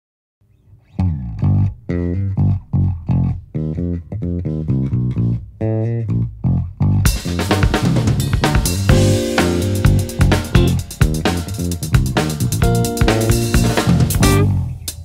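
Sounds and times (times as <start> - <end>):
electric bass guitar riff: 0.9 - 15.0
drum kit: 7.0 - 15.0.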